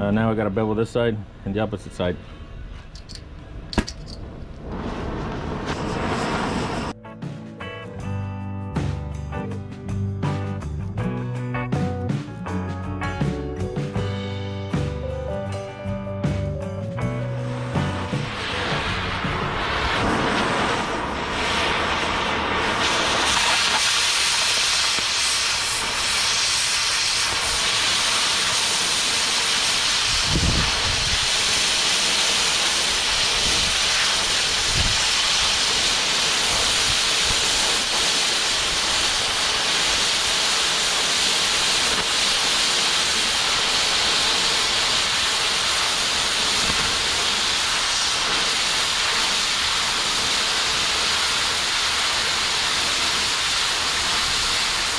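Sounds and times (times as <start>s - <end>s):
cutting torch hissing: 4.6s - 7.0s, 17.4s - 54.9s.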